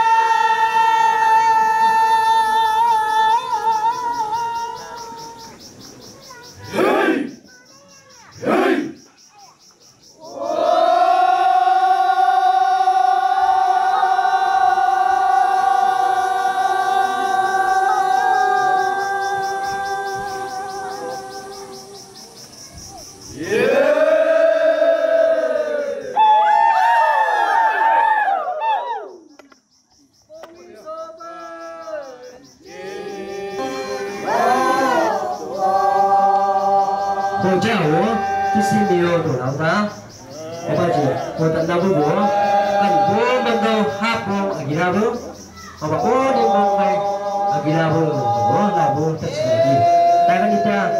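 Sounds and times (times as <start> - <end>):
men chanting in unison: 6.7 - 7.4, 8.4 - 9.0, 10.2 - 22.1, 23.3 - 26.2, 30.6 - 50.9.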